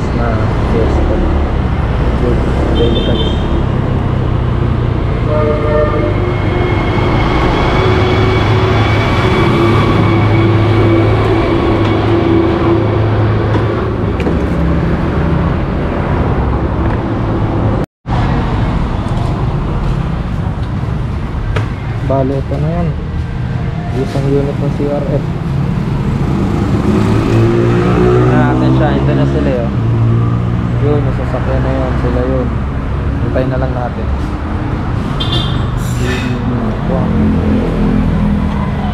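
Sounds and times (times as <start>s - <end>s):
traffic rumble: 0.0s - 38.9s
short horn toots: 5.2s - 6.4s.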